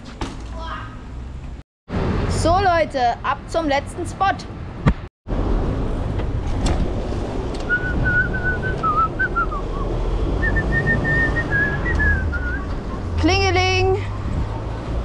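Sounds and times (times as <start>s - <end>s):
wind rumble on microphone: 4.8s - 15.0s
person whistling a tune: 7.7s - 12.7s.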